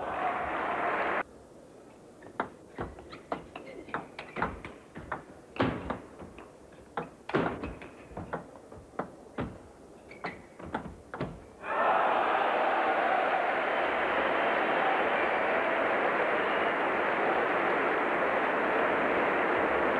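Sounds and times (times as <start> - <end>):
crowd noise: 0.0 - 1.3, 11.5 - 19.9
table tennis ball hits: 2.2 - 11.5.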